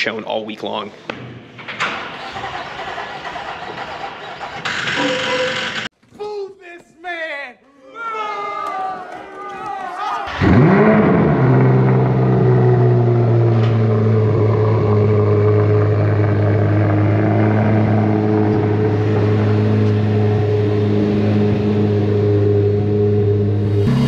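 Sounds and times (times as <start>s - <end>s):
sports car engine idling: 10.4s - 24.0s.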